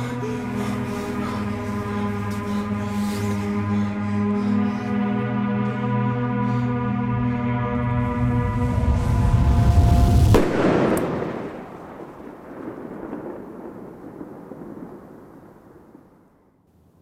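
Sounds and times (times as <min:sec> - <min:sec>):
music: 0:00.0 - 0:11.3
firework bang: 0:09.4 - 0:16.2.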